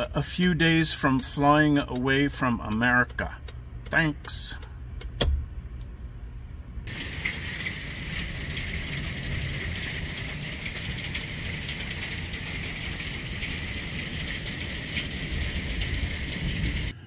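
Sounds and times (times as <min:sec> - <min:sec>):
low rumble: 0:05.4 - 0:17.0
hail and heavy rain pelting: 0:06.9 - 0:16.9.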